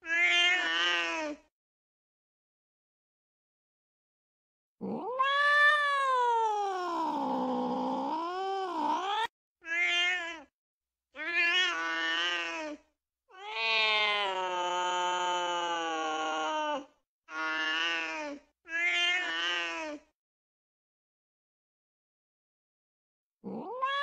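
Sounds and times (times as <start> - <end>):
cat yowling: 0.0 - 1.2, 4.9 - 7.5, 8.9 - 10.5, 13.3 - 16.8, 23.5 - 24.0.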